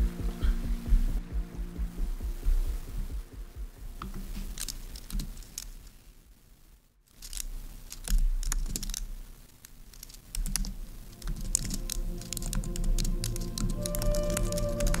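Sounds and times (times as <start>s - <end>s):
computer keyboard typing: 4.0s - 5.7s, 7.2s - 9.1s, 9.9s - 15.0s.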